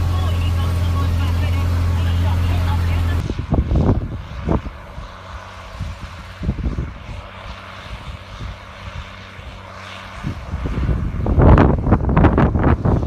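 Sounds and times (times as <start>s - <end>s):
tractor diesel engine under load: 0.0s - 3.3s
wind buffeting microphone: 0.0s - 13.0s.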